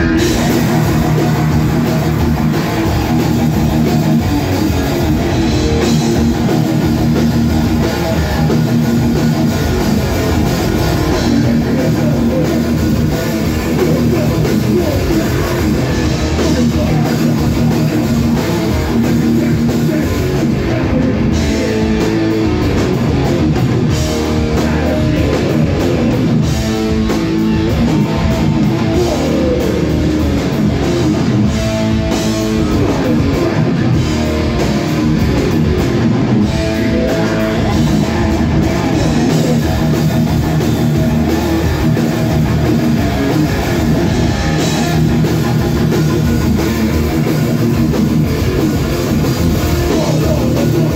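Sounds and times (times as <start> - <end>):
distorted electric guitars: 0.0 - 50.9
drum kit: 0.0 - 50.9.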